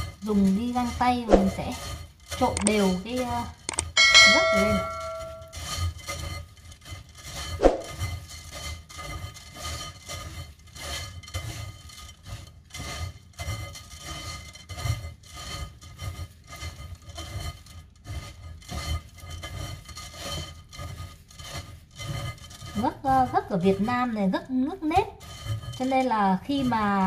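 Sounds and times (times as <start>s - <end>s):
wet rice rubbing against mesh: 0.0s - 4.5s, 5.5s - 27.0s
sharp clink: 3.7s - 5.5s.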